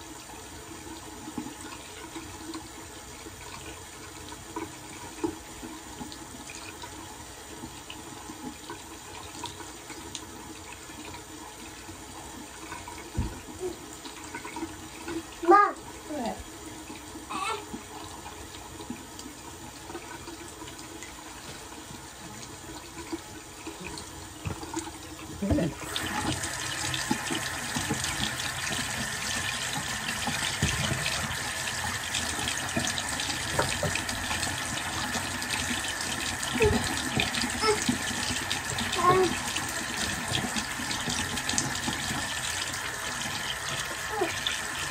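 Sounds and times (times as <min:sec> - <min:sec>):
tap running into sink: 0:12.7 - 0:15.2, 0:21.4 - 0:44.8.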